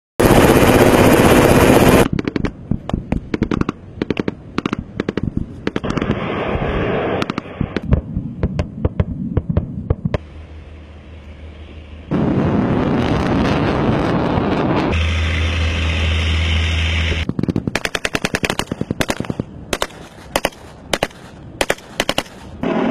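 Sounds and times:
rapid gunfire: 0:00.2 - 0:02.5, 0:17.2 - 0:22.6
low hum: 0:00.2 - 0:17.8
loud steady rush of noise: 0:00.2 - 0:22.9.

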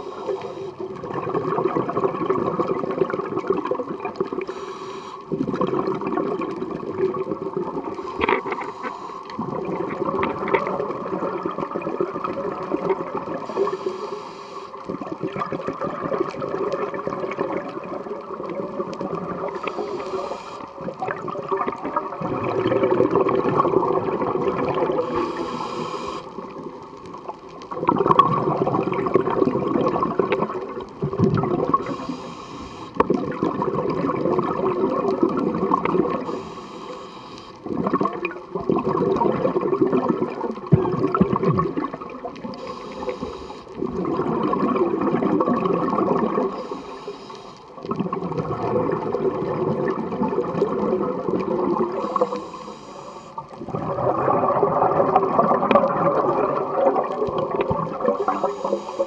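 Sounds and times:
diver breathing through regulator: 0:00.0 - 0:01.0, 0:04.4 - 0:05.4, 0:07.9 - 0:09.5, 0:13.3 - 0:14.8, 0:19.5 - 0:20.8, 0:24.9 - 0:26.5, 0:31.8 - 0:33.1, 0:36.1 - 0:37.7, 0:42.5 - 0:43.8, 0:46.4 - 0:47.8, 0:51.9 - 0:53.6, 0:58.0 - 0:59.0
exhaled bubbles rushing: 0:00.0 - 0:04.5, 0:05.3 - 0:08.7, 0:09.3 - 0:13.8, 0:14.8 - 0:20.1, 0:20.7 - 0:32.3, 0:33.0 - 0:36.5, 0:37.6 - 0:46.8, 0:47.7 - 0:52.6, 0:53.3 - 0:59.0.

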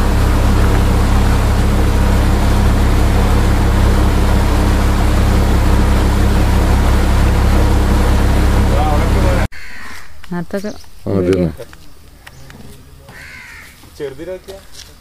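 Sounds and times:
motorboat engine running: 0:00.0 - 0:09.5.

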